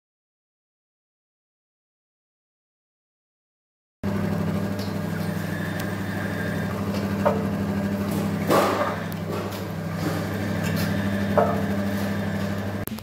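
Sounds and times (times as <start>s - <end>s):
juice press motor hum: 4.0s - 13.0s.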